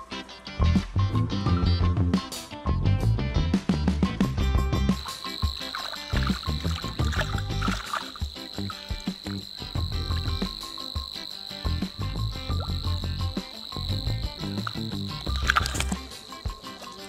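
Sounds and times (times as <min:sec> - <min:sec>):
insect trilling: 0:04.9 - 0:17.0.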